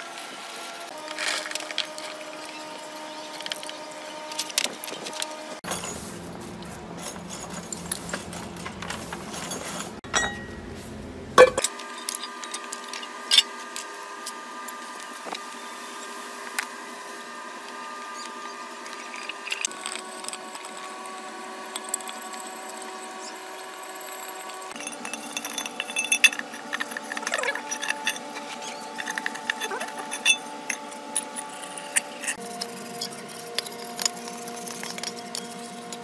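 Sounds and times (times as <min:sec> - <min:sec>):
parts brushed in cleaning liquid: 0:05.6 - 0:10.0.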